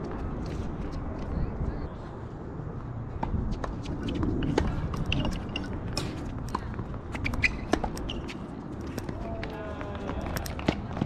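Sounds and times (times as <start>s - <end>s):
steady low rumble: 0.0s - 11.0s
tennis ball hit and bouncing: 4.5s - 9.6s.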